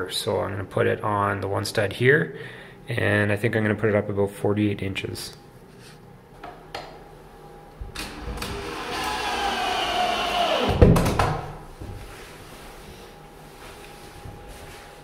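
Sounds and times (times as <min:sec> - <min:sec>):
cordless drill driving a screw: 0:08.1 - 0:10.8.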